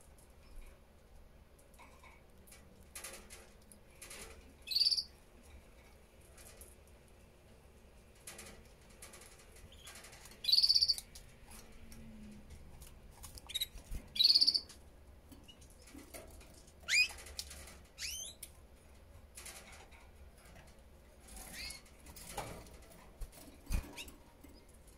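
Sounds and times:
canary chirps: 4.0s - 5.2s, 9.7s - 11.3s, 13.2s - 14.8s, 16.8s - 17.3s, 17.9s - 18.6s, 21.3s - 22.0s
canary buzzing trills: 13.5s - 14.7s.

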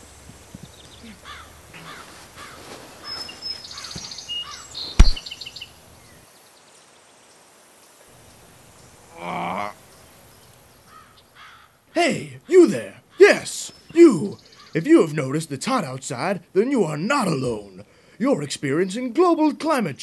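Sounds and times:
small birds chirping: 0.0s - 19.6s
sharp thump: 5.0s - 5.2s.

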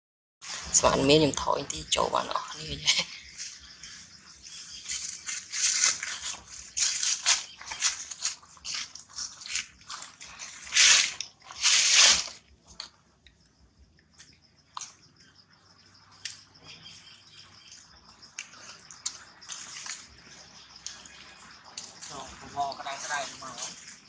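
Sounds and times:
dry leaves rustling and crunching: 3.2s - 12.4s, 19.4s - 24.0s.

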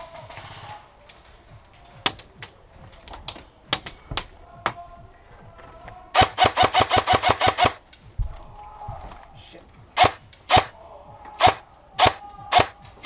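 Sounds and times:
airsoft rifle full auto burst: 6.2s - 7.8s, 10.0s - 10.7s
airsoft single shots: 10.0s - 10.7s.

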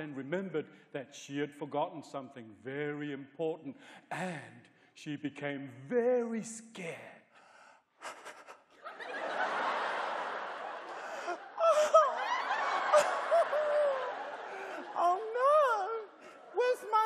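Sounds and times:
audience laughing: 8.1s - 17.0s
man wailing in mock fright: 11.6s - 12.3s.

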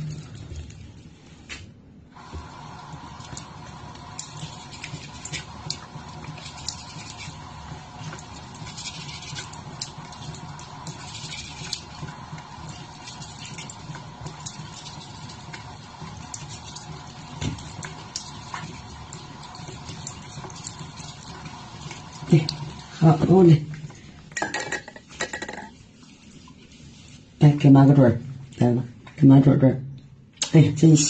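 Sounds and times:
steady hum: 1.6s - 25.7s.

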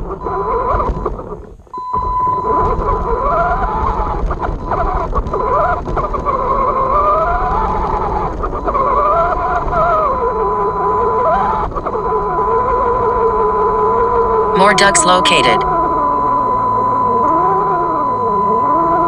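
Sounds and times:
steady high tone: 14.6s - 15.6s.

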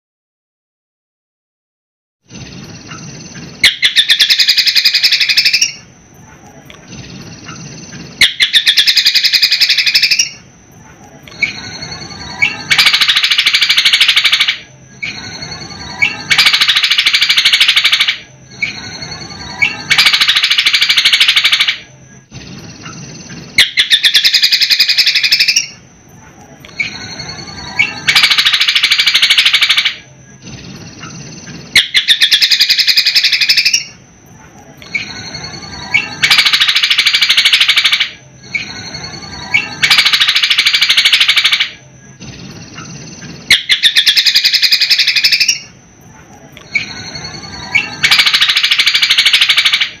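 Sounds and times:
soft bird chirps and whistles: 2.3s - 50.0s
bird rattling trill: 11.4s - 25.8s, 26.8s - 33.9s, 35.0s - 45.7s, 46.7s - 50.0s.

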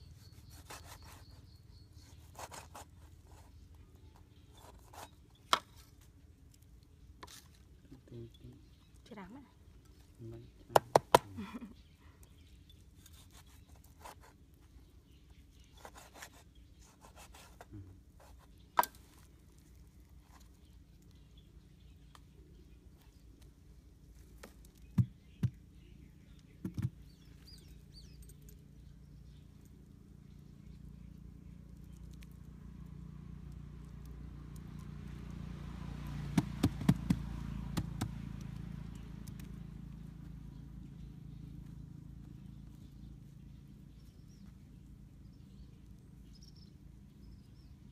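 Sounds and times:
knife scraping on wood: 0.2s - 1.4s
hand slapping wet mud: 36.1s - 38.6s.

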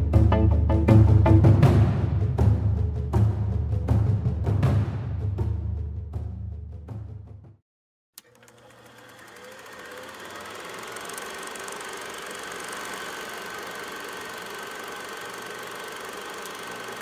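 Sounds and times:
film projector clatter: 8.2s - 17.0s.

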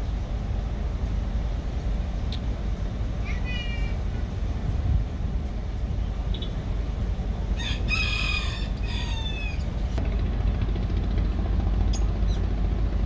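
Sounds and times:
steady low rumble: 0.0s - 13.0s
rooster crowing: 7.6s - 9.6s.

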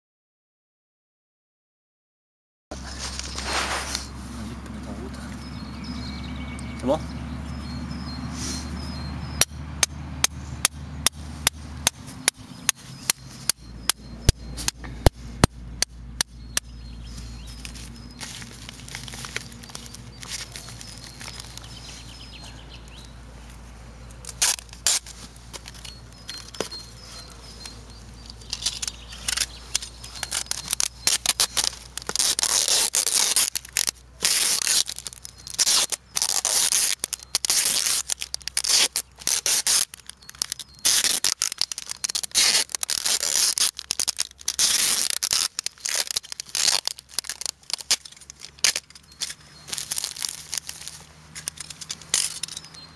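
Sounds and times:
paper rustling and handling: 2.8s - 5.4s, 17.1s - 22.3s, 23.4s - 52.6s
packing tape screeching off roll: 24.2s - 26.8s, 28.4s - 52.6s.

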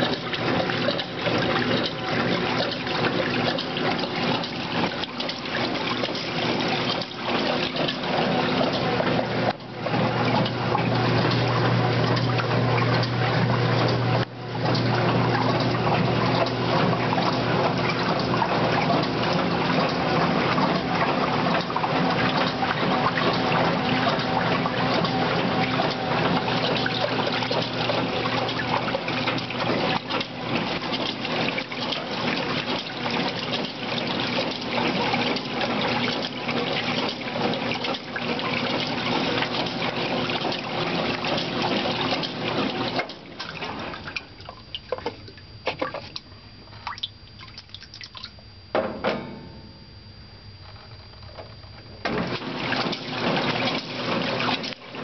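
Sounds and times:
water splashing: 0.0s - 48.4s, 52.2s - 55.0s
water dripping: 0.0s - 48.5s
washing machine water sloshing: 0.0s - 49.7s, 50.7s - 55.0s
washing machine motor hum: 0.0s - 55.0s.

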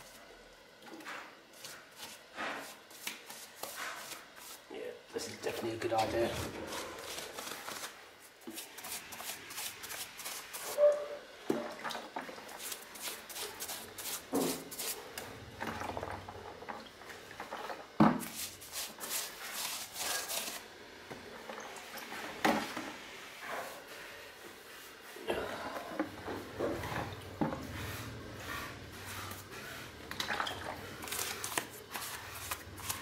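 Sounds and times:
paintbrush scrubbing brickwork: 1.1s - 4.7s, 5.5s - 11.0s, 12.5s - 15.1s, 18.2s - 20.6s, 26.8s - 30.1s, 30.8s - 33.0s.

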